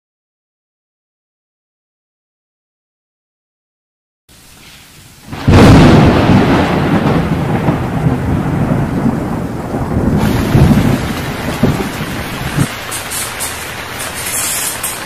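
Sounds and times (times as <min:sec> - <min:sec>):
steady rain: 0:04.3 - 0:15.0
thunder rumbling: 0:05.3 - 0:15.0.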